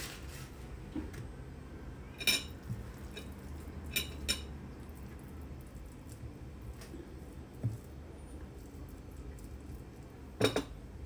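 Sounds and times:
dishes and utensils clinking: 0:02.1 - 0:04.6, 0:10.4 - 0:10.8.

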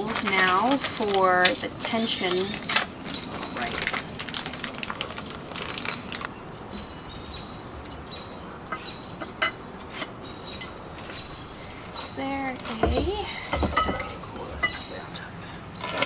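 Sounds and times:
outdoor background noise: 0:00.0 - 0:16.0
clinks of metal frame tubes: 0:12.7 - 0:14.9.

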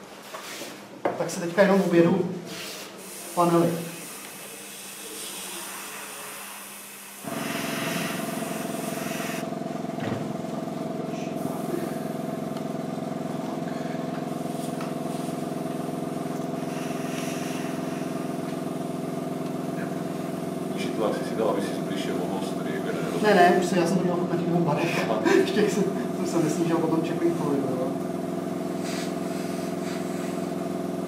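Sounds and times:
air compressor motor humming: 0:02.1 - 0:31.0
airbrush hissing: 0:02.5 - 0:09.5, 0:14.3 - 0:19.0, 0:28.7 - 0:30.6.

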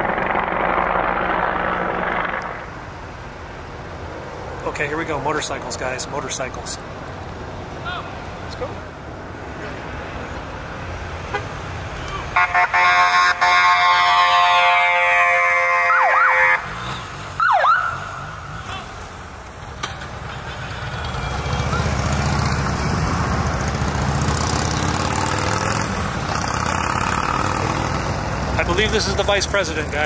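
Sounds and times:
vehicle engines rumbling past: 0:00.0 - 0:12.4, 0:13.0 - 0:30.0
long steady horn blast: 0:11.2 - 0:11.6, 0:12.3 - 0:16.7
siren yelps: 0:12.3 - 0:16.8, 0:17.4 - 0:18.8.

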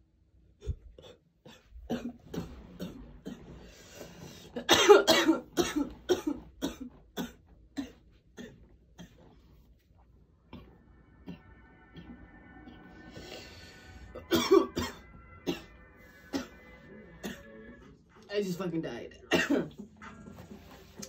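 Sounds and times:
woman coughing hard: 0:01.0 - 0:03.5, 0:04.6 - 0:09.3, 0:14.1 - 0:16.6, 0:17.2 - 0:17.5, 0:19.3 - 0:19.9.

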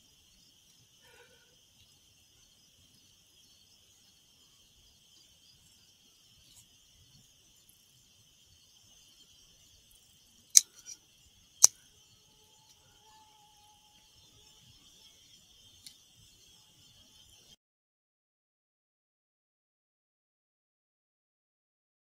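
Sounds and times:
night insects chirping: 0:00.0 - 0:17.6
sharp mechanical clicks: 0:10.5 - 0:11.0.

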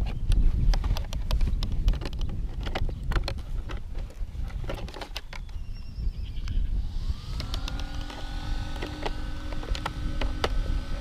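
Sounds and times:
hands handling plastic body clicks: 0:00.0 - 0:05.6
wind on microphone: 0:00.0 - 0:11.0
small electric motor whine: 0:04.9 - 0:11.0.

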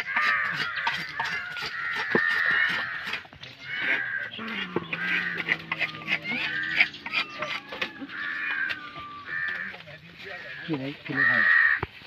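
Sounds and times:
cats mewing and yowling: 0:00.0 - 0:09.7.

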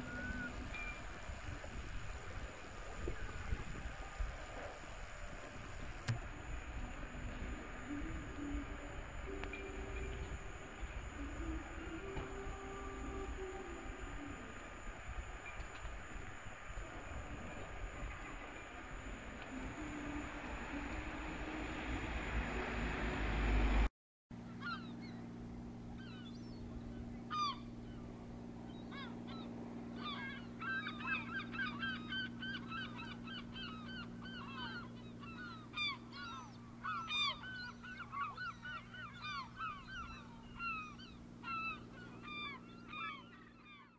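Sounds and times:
harbour ambience: 0:00.0 - 0:43.8
steady low hum: 0:00.0 - 0:43.9
flock of birds calling: 0:28.8 - 0:43.9.

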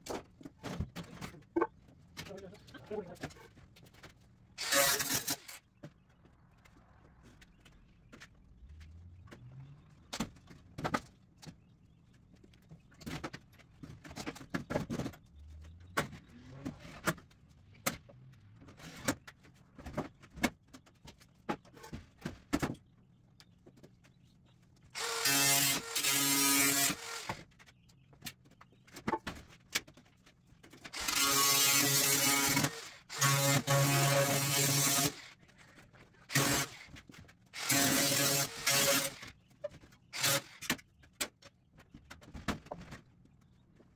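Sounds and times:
cordless power driver running: 0:25.0 - 0:27.4, 0:31.0 - 0:35.2, 0:37.6 - 0:39.2.

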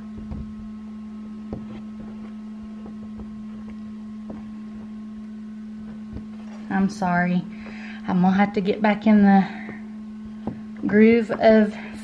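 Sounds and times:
incubator humming: 0:00.0 - 0:12.0
faint handling knocks: 0:01.5 - 0:05.0, 0:09.5 - 0:11.4.

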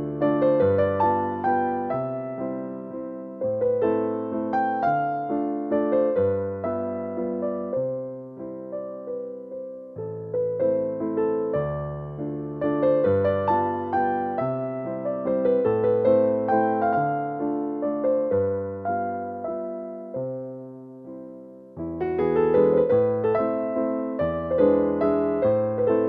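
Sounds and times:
gentle piano music: 0:00.0 - 0:26.0.

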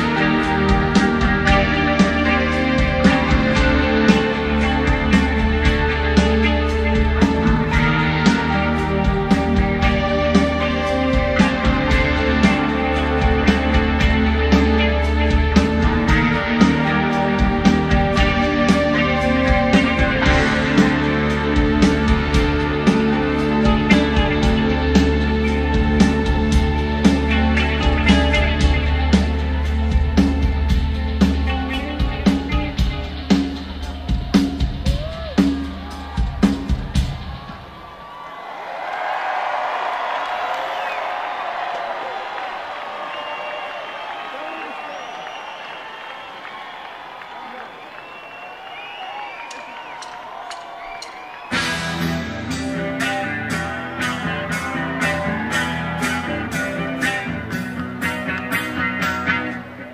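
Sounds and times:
steady drum beat: 0:00.0 - 0:37.8
rock band playing: 0:00.0 - 0:37.9, 0:48.8 - 0:59.9.

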